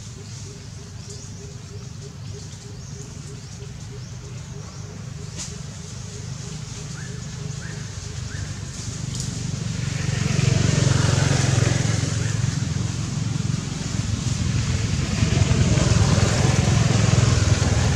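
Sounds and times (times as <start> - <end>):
engine low rumble: 0.0 - 17.9.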